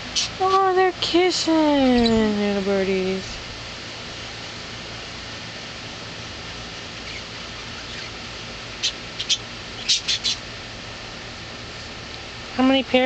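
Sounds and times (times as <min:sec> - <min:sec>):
steady background hiss: 0:00.0 - 0:13.0
parakeets chirping: 0:00.1 - 0:00.6, 0:01.8 - 0:03.3, 0:07.0 - 0:10.5.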